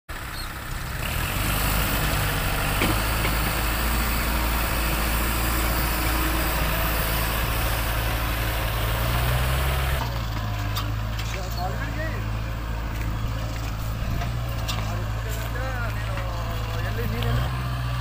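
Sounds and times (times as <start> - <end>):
tractor diesel engine under load: 0.1 - 18.0.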